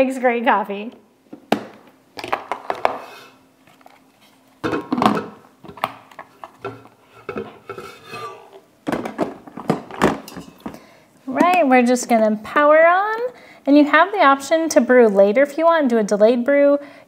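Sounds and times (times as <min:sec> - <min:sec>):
carafe and lid clinking: 0:06.6 - 0:08.6, 0:10.2 - 0:10.8.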